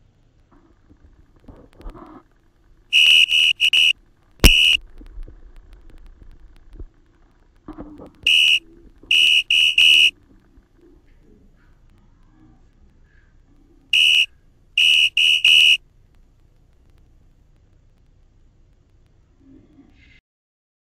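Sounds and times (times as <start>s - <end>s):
shrill whistle blasts: 2.9s - 4.8s, 8.3s - 10.1s, 14.0s - 15.8s.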